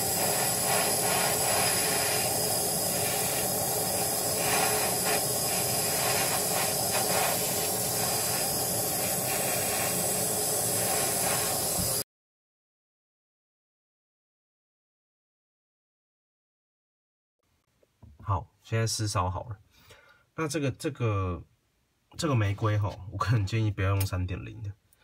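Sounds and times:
steady hissing noise: 0.0 - 12.0.

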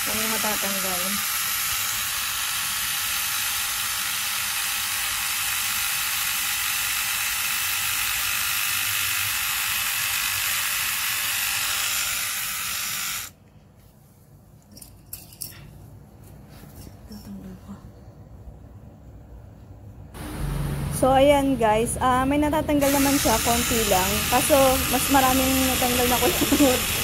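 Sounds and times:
electric trimmer whirring: 0.0 - 13.4, 22.8 - 27.0.

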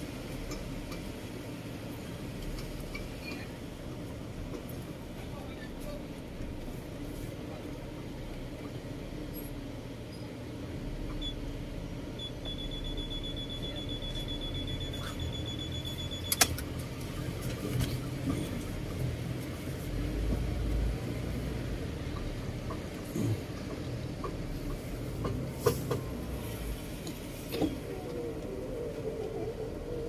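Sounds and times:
car cabin rumble: 11.0 - 30.0
faint rapid pulsing beep: 12.2 - 16.4.

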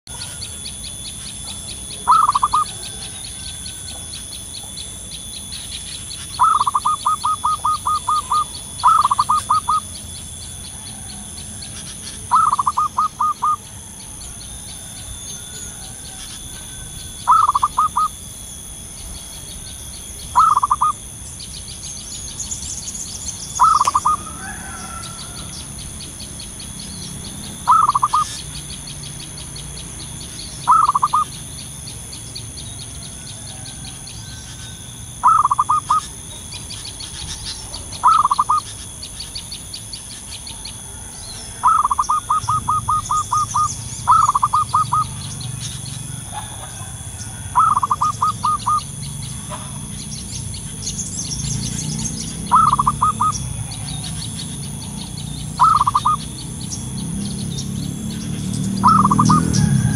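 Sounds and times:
fast high pulsing: 0.0 - 59.9
thin steady high tones: 0.1 - 59.9
dove cooing: 1.4 - 18.2, 19.5 - 21.0, 23.5 - 26.0, 27.2 - 28.6, 30.4 - 31.4, 32.9 - 39.1, 40.5 - 50.0, 51.6 - 56.4, 58.3 - 59.9.

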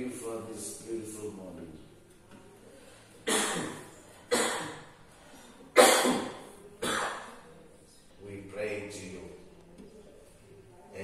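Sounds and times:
person coughing: 5.8 - 7.3.

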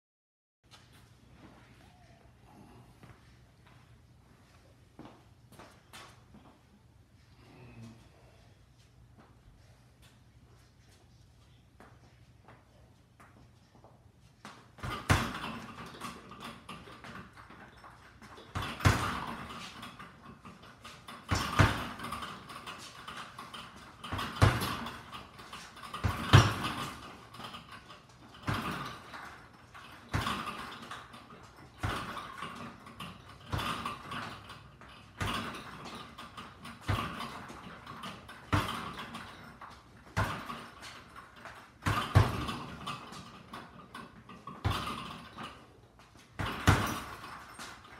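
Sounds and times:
punches on a punching bag: 14.8 - 16.2, 18.5 - 19.6, 21.2 - 22.3, 24.0 - 25.1, 25.8 - 27.1, 28.4 - 29.1, 30.1 - 30.8, 31.8 - 32.7, 33.4 - 34.4, 35.2 - 39.4, 40.1 - 40.8, 41.8 - 43.3, 44.6 - 45.2, 46.4 - 47.3.

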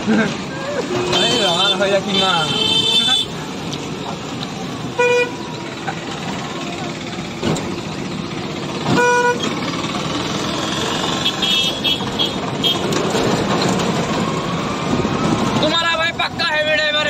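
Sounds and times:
traffic and road noise: 0.0 - 17.0
vehicle horn honk: 1.1 - 3.4, 5.0 - 5.4, 8.9 - 9.5, 10.7 - 12.9.

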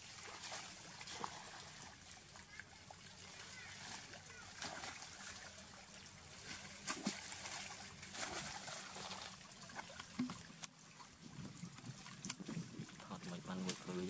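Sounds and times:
monkeys splashing in water: 0.0 - 10.6.

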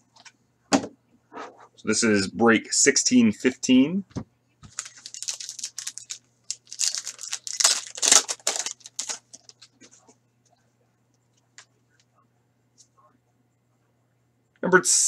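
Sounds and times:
wrapper crackling torn open: 4.7 - 9.7.

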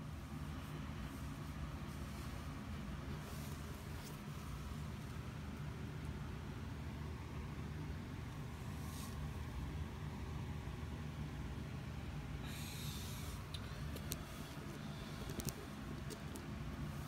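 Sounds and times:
steady low hum: 0.0 - 17.0
short rustle: 0.4 - 5.2.

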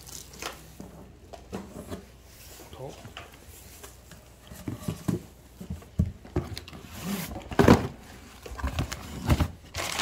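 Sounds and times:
box contents knocking and scraping: 4.5 - 9.9.

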